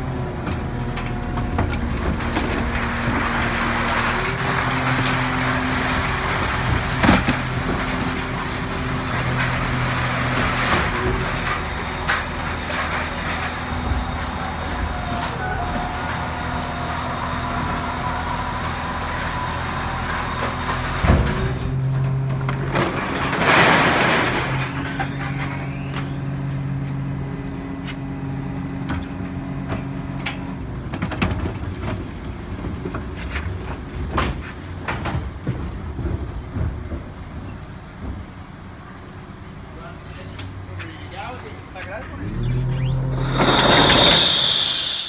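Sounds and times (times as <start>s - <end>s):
garbage truck engine running: 0.0s - 39.9s, 42.0s - 45.0s
hydraulic whine: 24.2s - 30.3s, 42.2s - 45.0s
loud rushing burst: 43.1s - 45.0s.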